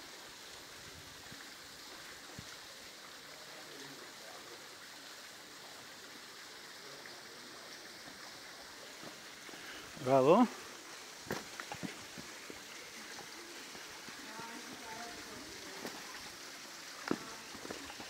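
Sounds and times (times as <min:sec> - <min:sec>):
stream flowing: 0:00.0 - 0:18.0
waterfall rushing: 0:06.8 - 0:18.0.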